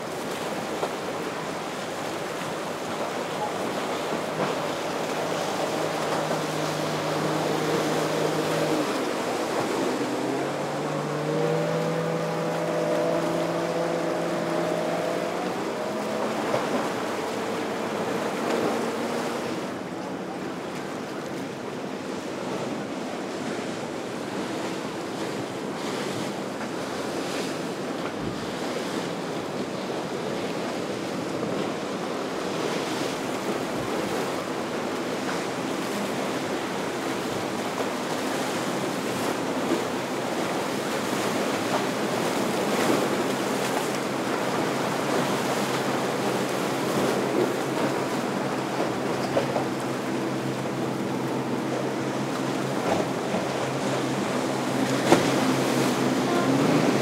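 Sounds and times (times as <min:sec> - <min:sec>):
faint boat engine: 0:00.0 - 0:57.0
ocean surf: 0:00.0 - 0:57.0.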